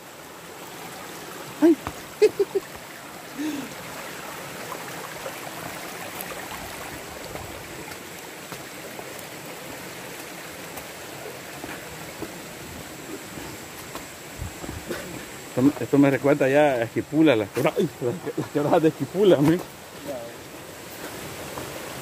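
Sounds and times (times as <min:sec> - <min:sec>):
stream running over rocks: 0:00.0 - 0:22.0
voice: 0:15.6 - 0:20.4.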